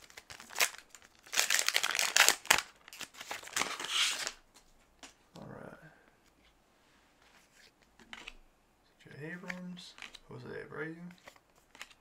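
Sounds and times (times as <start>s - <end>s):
plastic wrapper crinkling: 0.0s - 4.4s.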